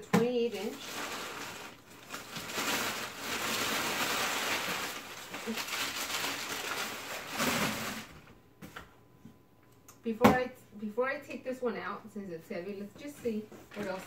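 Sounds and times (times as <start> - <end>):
packing paper crinkling: 0.4 - 8.3, 13.7 - 14.0.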